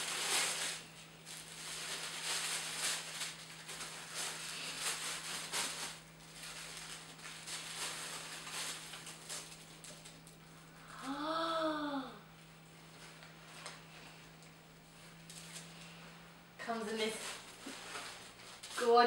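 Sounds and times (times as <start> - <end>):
tissue paper rustling: 0.0 - 10.4, 16.6 - 19.0
person saying ooh: 10.9 - 12.3.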